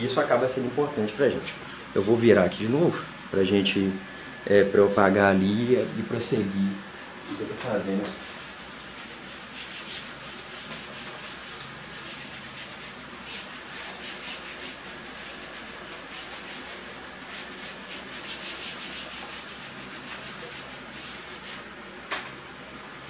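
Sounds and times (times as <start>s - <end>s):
eraser rubbing on whiteboard: 7.6s - 21.7s.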